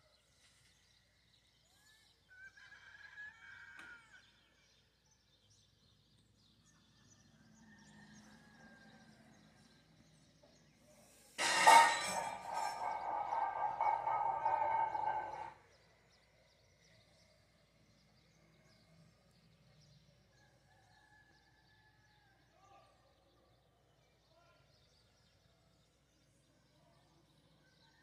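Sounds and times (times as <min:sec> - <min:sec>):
rooster crowing: 0:02.4 - 0:04.2.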